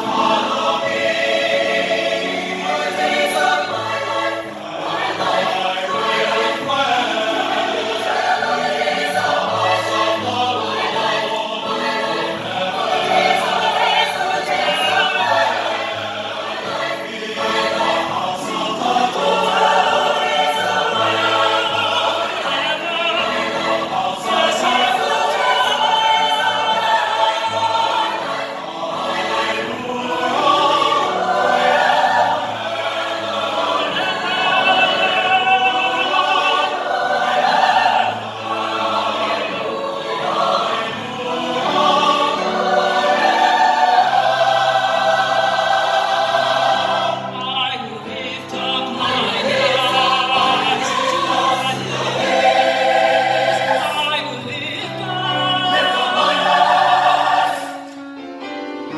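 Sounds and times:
mixed choir singing chords: 0:00.0 - 0:58.9
male soloist singing: 0:17.3 - 0:27.2, 0:33.5 - 0:36.8, 0:47.2 - 0:52.3, 0:53.6 - 0:57.6.

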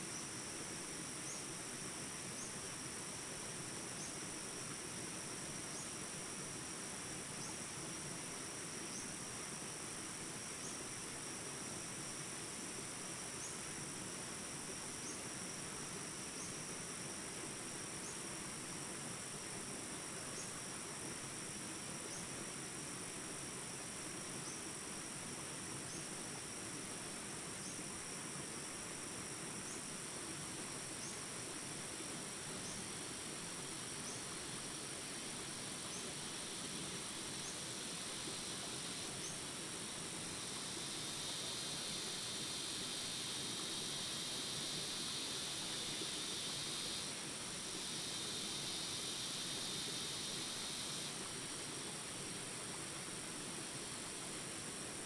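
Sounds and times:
high-pitched insect drone: 0:32.6 - 0:52.0.

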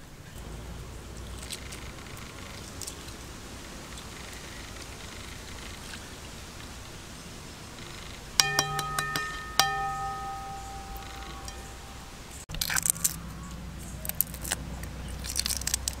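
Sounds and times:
egg tapping on metal pan: 0:08.4 - 0:12.0
pan ringing bell-like: 0:08.4 - 0:12.4.

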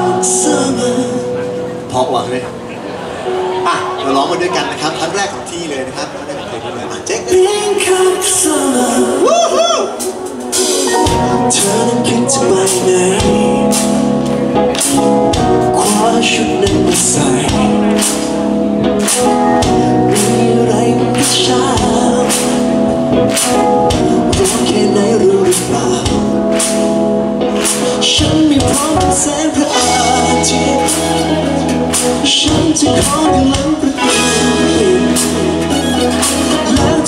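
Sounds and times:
man singing: 0:00.0 - 0:01.7, 0:07.0 - 0:26.6, 0:27.6 - 0:37.0
live pop band playing: 0:00.0 - 0:37.0
drum kit beat: 0:09.6 - 0:37.0.

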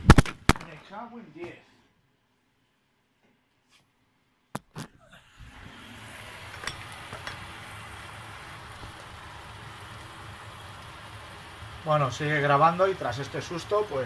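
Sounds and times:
meat and onion sizzling in pan: 0:05.6 - 0:14.0.

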